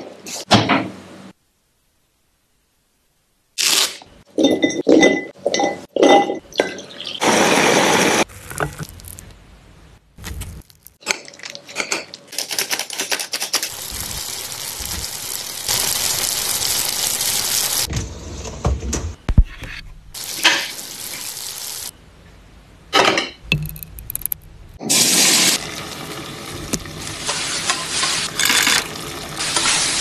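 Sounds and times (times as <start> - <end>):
shrimp sizzling in oil: 13.6 - 17.9, 20.2 - 21.9, 24.9 - 30.0.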